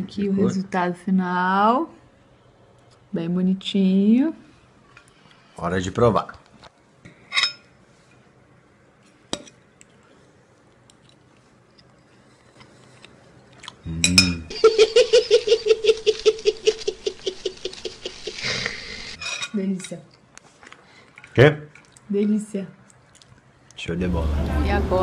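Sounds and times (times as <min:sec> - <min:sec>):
man giggling: 0:13.9 - 0:18.9.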